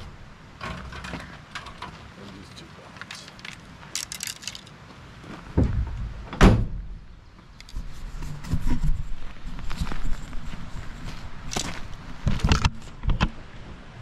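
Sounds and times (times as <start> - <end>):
low rumbling and knocking: 5.5 - 7.1
loud slam: 5.6 - 7.0.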